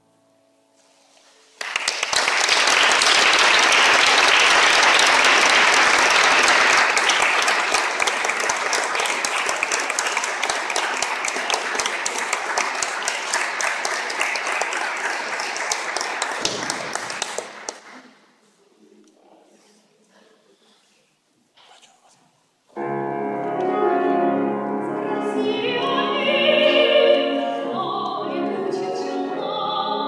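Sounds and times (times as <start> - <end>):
audience applauding: 1.6 - 18.2.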